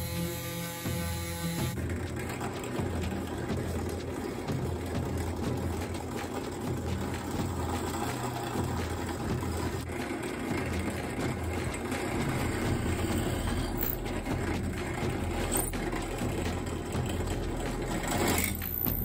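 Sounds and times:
drill press boring into wood: 0:00.0 - 0:01.8.

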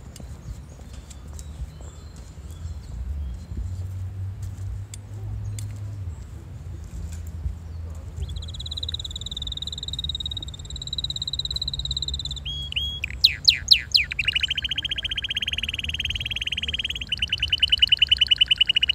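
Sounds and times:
canary singing trills: 0:08.1 - 0:18.9.

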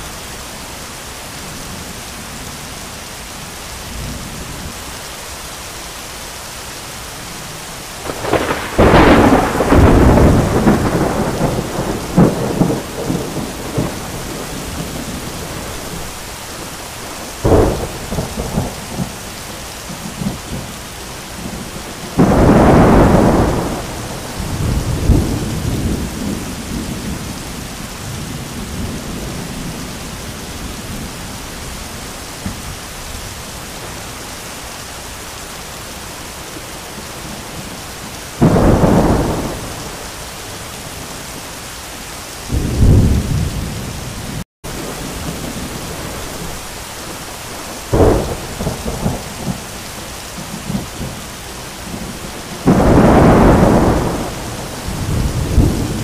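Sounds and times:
heavy rain pouring: 0:00.0 - 0:56.0
thunder cracks: 0:08.0 - 0:16.1, 0:17.3 - 0:19.2, 0:21.4 - 0:27.2, 0:38.4 - 0:40.0, 0:42.5 - 0:43.9, 0:47.7 - 0:49.7, 0:51.8 - 0:56.0
thunder rumble: 0:08.0 - 0:20.7, 0:21.4 - 0:31.7, 0:38.3 - 0:40.2, 0:42.5 - 0:49.8, 0:51.8 - 0:56.0.

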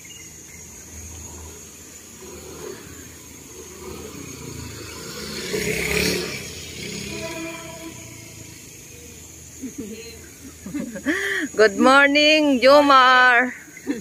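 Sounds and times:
motor scooter passing by: 0:00.6 - 0:11.1.

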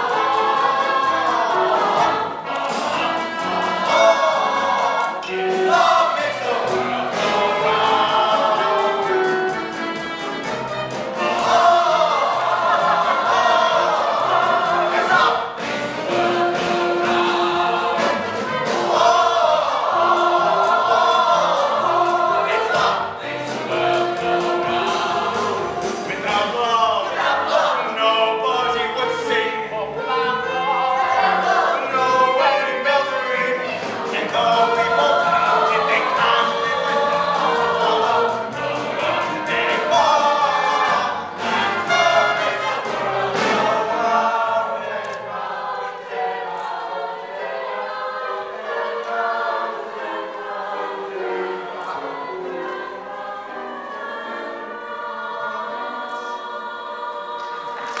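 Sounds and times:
male ensemble singing: 0:00.0 - 0:58.0
musical accompaniment: 0:00.0 - 0:58.0.

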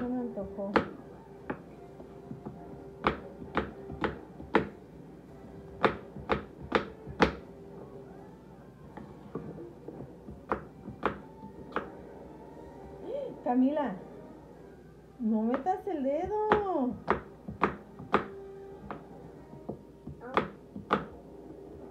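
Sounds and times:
knife chopping on wooden board: 0:00.7 - 0:01.6, 0:03.0 - 0:04.8, 0:05.7 - 0:07.4, 0:10.3 - 0:12.0, 0:15.5 - 0:19.0, 0:20.1 - 0:21.1.

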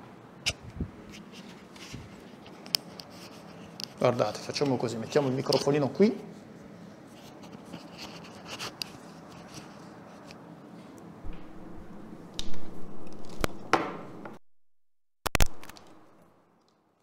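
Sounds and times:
microphone handling knocks: 0:11.3 - 0:14.4.

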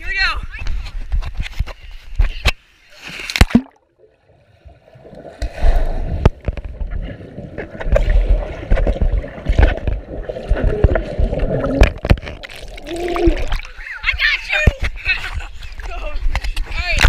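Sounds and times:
underwater churning and gurgling: 0:03.5 - 0:14.0
underwater knocks: 0:07.5 - 0:12.6.

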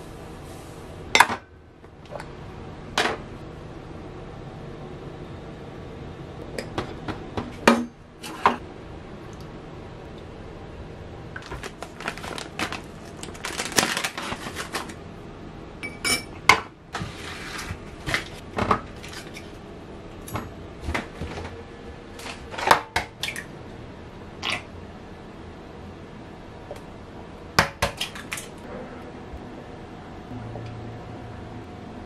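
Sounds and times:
utensils clinking against bowls: 0:15.8 - 0:16.4.

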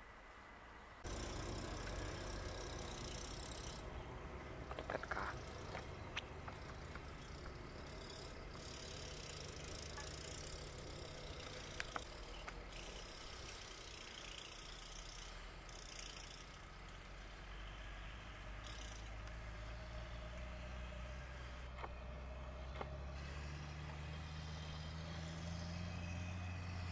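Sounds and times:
low engine drone: 0:01.0 - 0:15.8.

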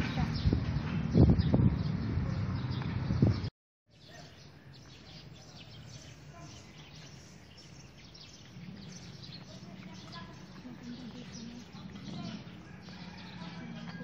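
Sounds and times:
birds chirping: 0:00.0 - 0:14.0
faint outdoor background noise: 0:00.0 - 0:14.0.

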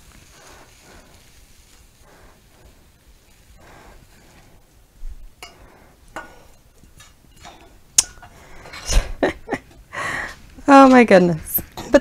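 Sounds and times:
wooden spoon scraping skillet: 0:00.0 - 0:04.7, 0:05.3 - 0:12.0
cookware clattering: 0:06.2 - 0:09.8, 0:11.7 - 0:12.0.

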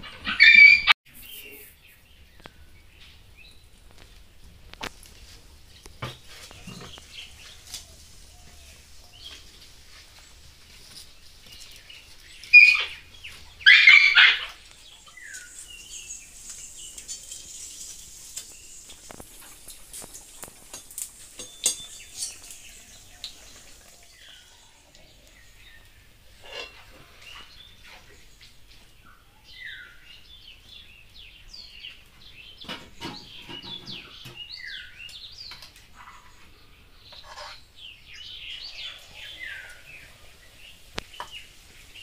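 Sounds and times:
small birds chirping: 0:00.0 - 0:42.0
loud animal calls: 0:13.6 - 0:14.6
batter sizzling in oil: 0:15.0 - 0:24.4.

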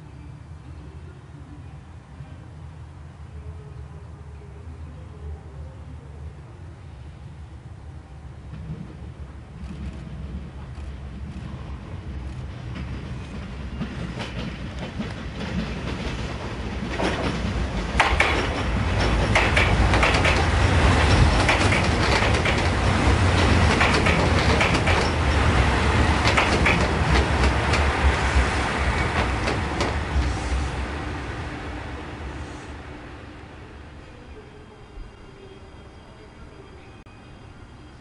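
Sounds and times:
diesel train engine rumble: 0:00.0 - 0:38.0
train wheels clacking: 0:12.2 - 0:30.8.

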